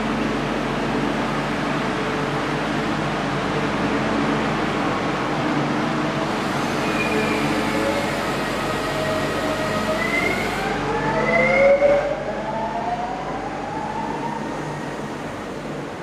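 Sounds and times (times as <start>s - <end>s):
train rumble: 0.0s - 16.0s
electric train whine rising: 6.2s - 15.6s.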